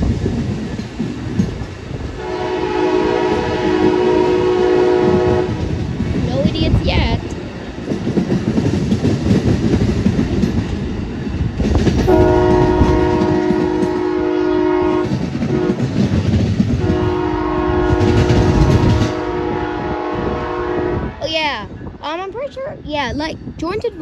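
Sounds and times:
train wheels clickety-clack: 0.0s - 2.2s, 3.0s - 19.4s
train horn blasts: 2.2s - 5.7s, 12.1s - 16.0s, 16.8s - 21.2s.

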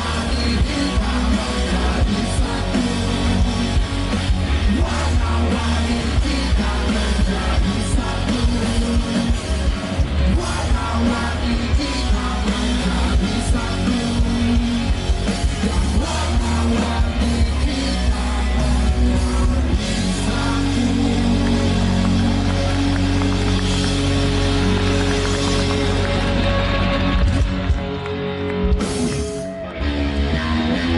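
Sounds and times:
person singing: 0.0s - 3.8s, 4.5s - 23.2s
rock band playing: 0.0s - 30.9s.

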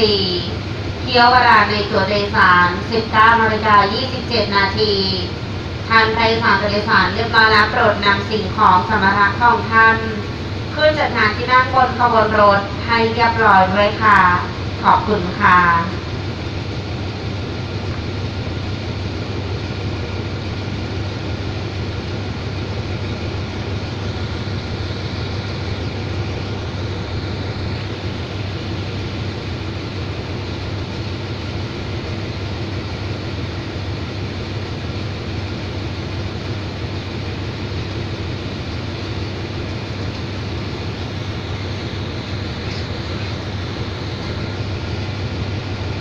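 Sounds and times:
diesel locomotive idling: 0.0s - 46.0s.

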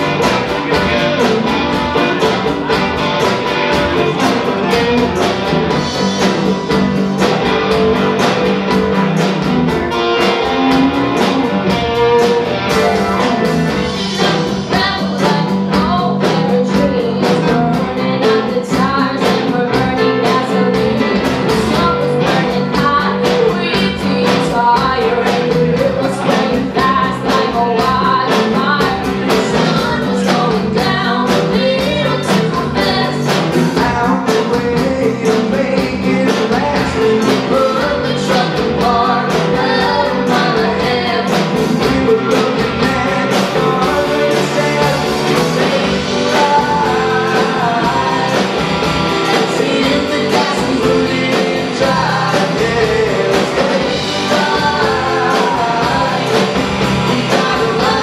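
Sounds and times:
live country rock band: 0.0s - 58.0s
person singing: 0.0s - 58.0s.

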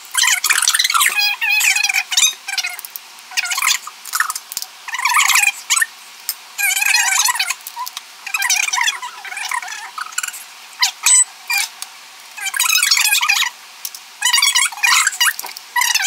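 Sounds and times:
squeaky high-pitched chatter: 0.2s - 5.9s, 6.6s - 11.7s, 12.4s - 13.5s, 14.2s - 16.0s.

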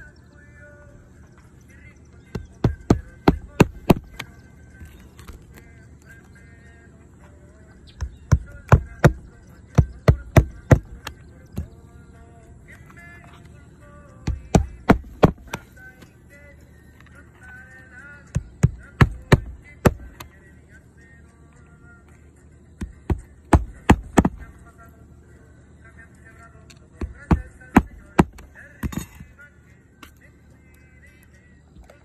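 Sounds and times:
hammer striking roofing nails: 2.4s - 4.2s, 8.0s - 11.0s, 14.3s - 15.6s, 18.4s - 20.2s, 22.8s - 24.4s, 27.0s - 29.0s.

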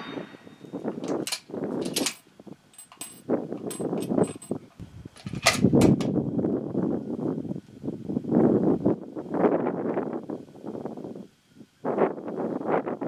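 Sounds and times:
rifle bolt metallic clicks: 1.0s - 2.2s.

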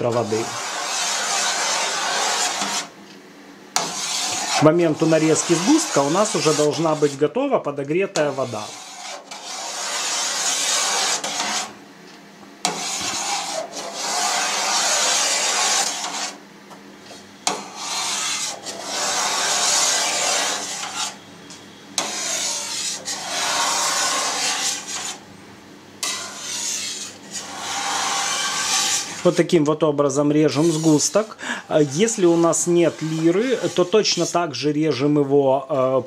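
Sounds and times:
knife scraping steel pan: 0.0s - 2.9s, 3.8s - 7.2s, 8.2s - 11.8s, 12.6s - 16.4s, 17.5s - 21.2s, 22.0s - 25.2s, 26.0s - 29.4s, 30.5s - 34.4s.

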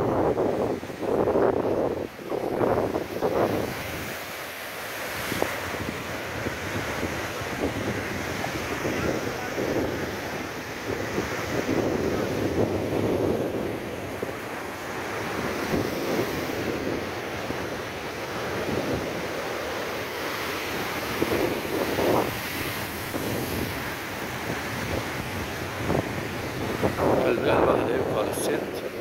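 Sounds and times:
surf breaking over rocks: 0.0s - 29.0s
wind buffeting the microphone: 0.0s - 29.0s.

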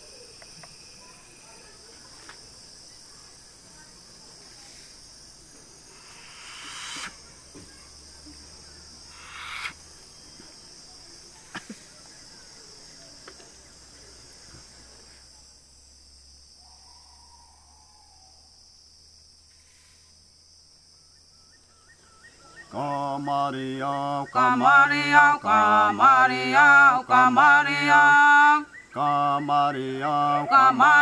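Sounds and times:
insects buzzing: 0.0s - 31.0s
sharp breaths through nose: 5.9s - 7.2s, 9.1s - 9.8s.

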